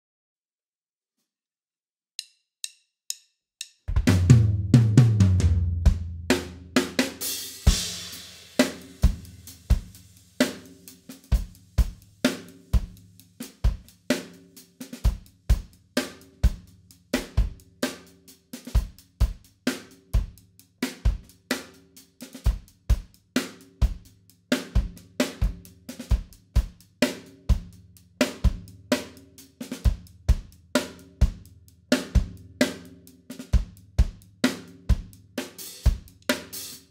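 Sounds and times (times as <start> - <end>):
drumsticks clicking count-in: 2.2 - 3.9
drum kit groove: 2.2 - 36.9.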